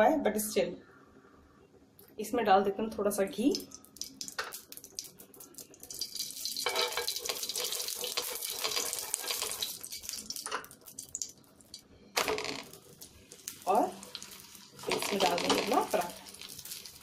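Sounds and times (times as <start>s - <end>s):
ghee sizzling in a pan: 3.5s - 17.0s.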